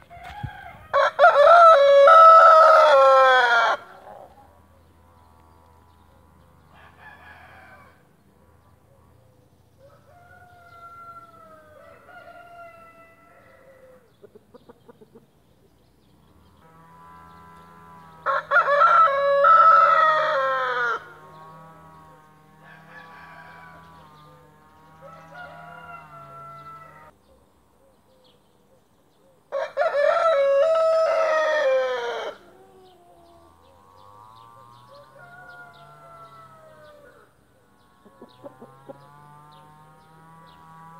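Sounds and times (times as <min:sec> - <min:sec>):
rooster crowing: 0:00.0 - 0:04.3, 0:06.7 - 0:08.1, 0:09.8 - 0:14.1, 0:18.2 - 0:21.4, 0:22.5 - 0:27.1, 0:29.5 - 0:37.4.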